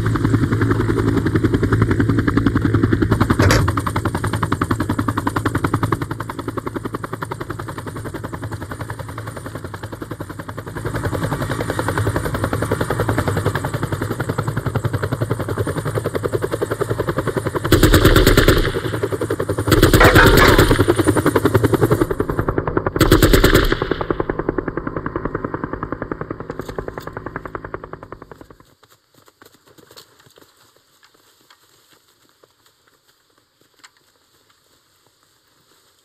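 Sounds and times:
helicopter rotor chopping: 0.0s - 28.6s
machine-gun fire bursts: 17.6s - 21.6s, 23.0s - 24.4s.

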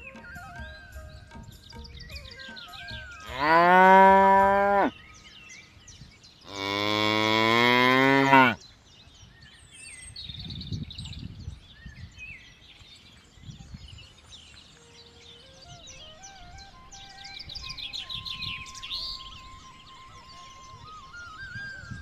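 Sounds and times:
water buffalo mooing: 3.3s - 4.9s, 6.5s - 8.6s.

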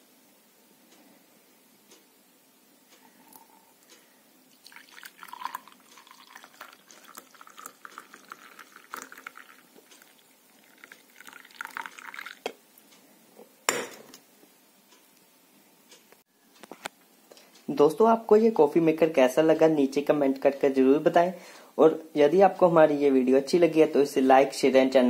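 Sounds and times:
coffee pouring into a mug: 3.2s - 3.6s, 4.5s - 12.6s.

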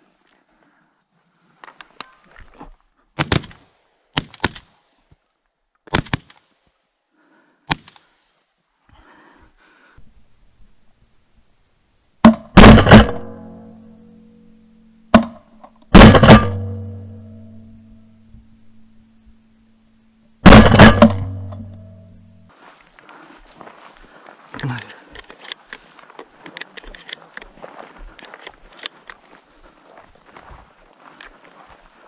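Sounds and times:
loud shotgun shots: 3.2s - 3.6s, 12.2s - 13.4s, 15.9s - 16.9s, 20.4s - 21.6s
low hum: 10.0s - 22.5s
sharp clicks: 24.8s - 27.5s, 28.1s - 29.2s.

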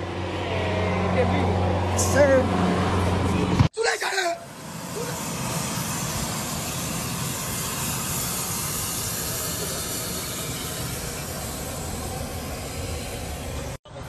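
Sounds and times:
rushing hissing noise: 4.0s - 14.0s.

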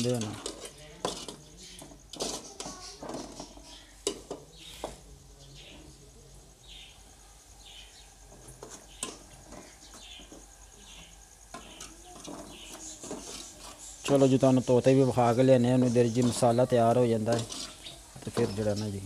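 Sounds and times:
ladle scraping metal pot: 0.0s - 4.4s, 11.5s - 18.8s.

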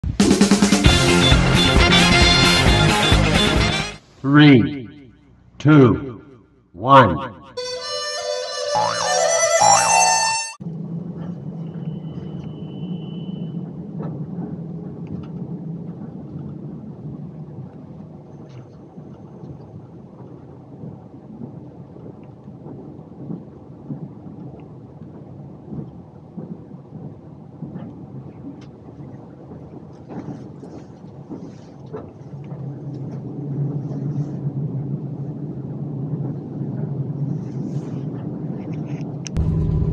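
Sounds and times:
train rumbling: 39.3s - 39.9s.

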